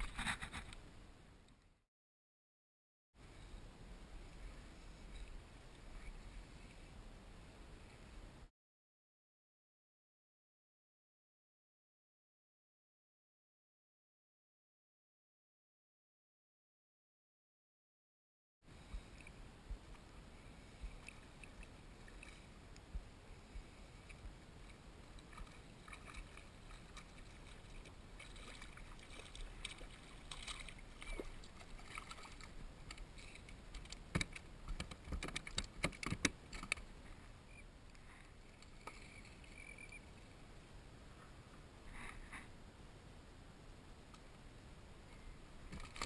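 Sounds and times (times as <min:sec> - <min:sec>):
water washing around kayak hull: 0:18.7 - 0:37.1.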